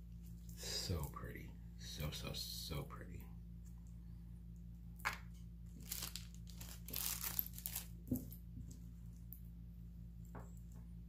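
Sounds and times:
packaging crinkling and rustling: 5.7 - 8.4.

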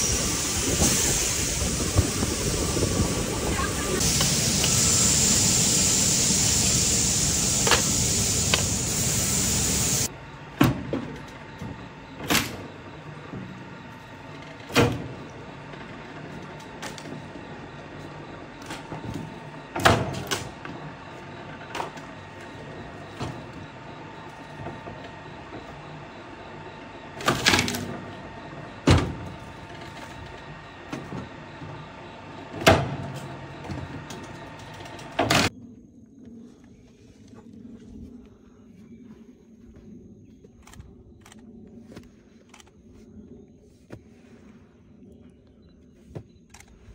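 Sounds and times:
wood-splitting machine running: 0.0 - 35.5
machine chopping logs: 3.4 - 12.7.

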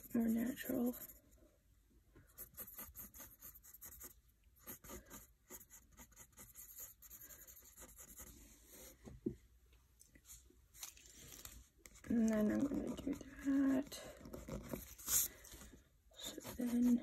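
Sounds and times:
pencil scratching on paper: 0.0 - 1.3, 2.3 - 9.0, 11.9 - 15.3, 16.2 - 17.0.

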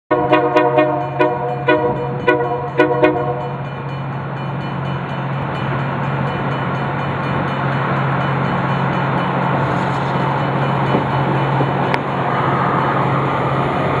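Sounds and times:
rail grinder horn blasts: 0.1 - 3.6.

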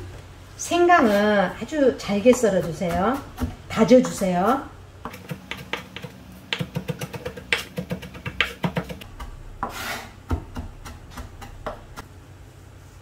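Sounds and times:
knife tapping on wooden board: 5.0 - 9.3
knife scraping across board: 9.6 - 10.1.

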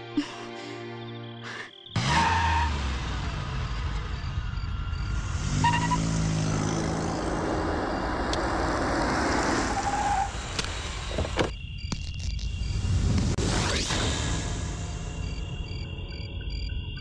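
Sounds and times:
road noise: 1.9 - 15.4
car engine approaching: 2.0 - 11.5.

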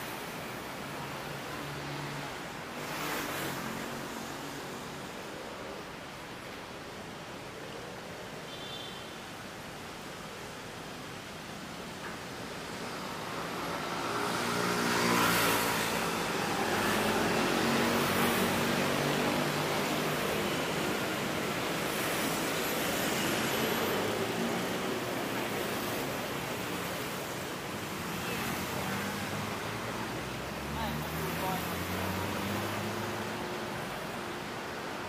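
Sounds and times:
vehicles passing: 0.0 - 6.6, 11.0 - 35.0.

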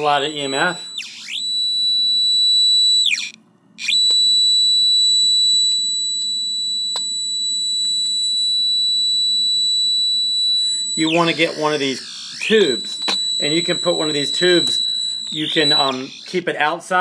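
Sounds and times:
meter high alarm-like tone: 0.0 - 16.7.

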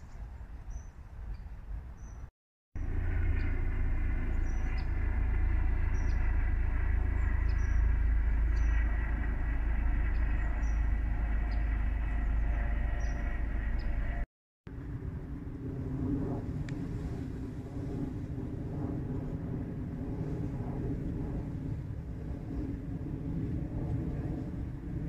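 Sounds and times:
low rumble and hiss: 2.8 - 20.0
small birds chirping: 5.8 - 6.3, 7.2 - 9.0, 10.0 - 14.0.

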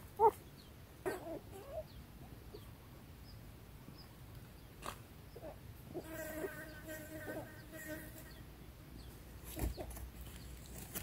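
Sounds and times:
flying insect buzzing: 6.0 - 8.4.

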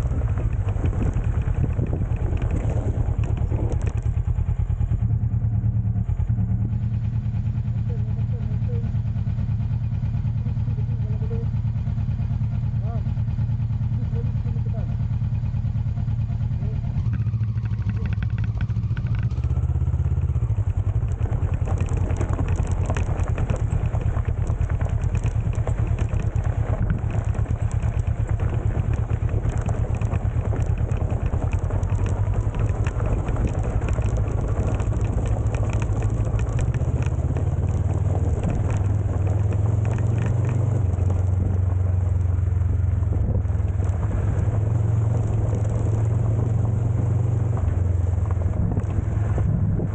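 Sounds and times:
tyre noise on gravel: 0.0 - 4.1, 20.3 - 49.9
motorcycle engine running: 0.0 - 49.9.

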